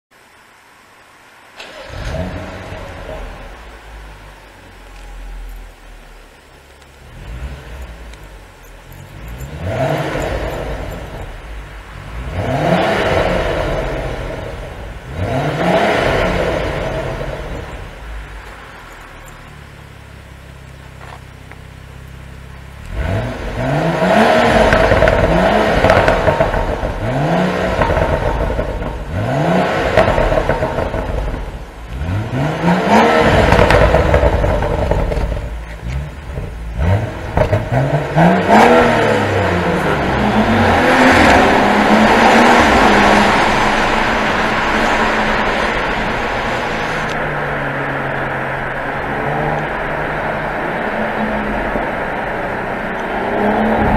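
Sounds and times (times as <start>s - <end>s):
car engine idling and revving: 0.1s - 53.9s.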